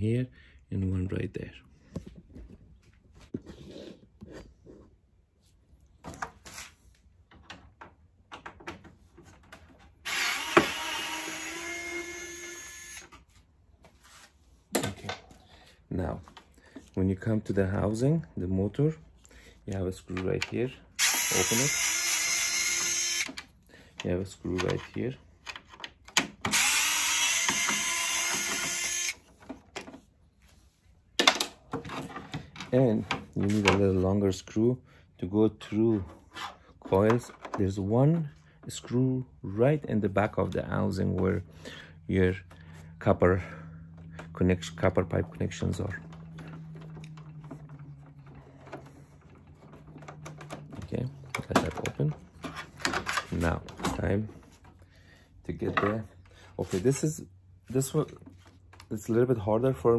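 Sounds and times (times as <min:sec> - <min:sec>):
cordless screwdriver running: 0:10.0 - 0:13.1, 0:21.0 - 0:23.3, 0:26.5 - 0:29.2.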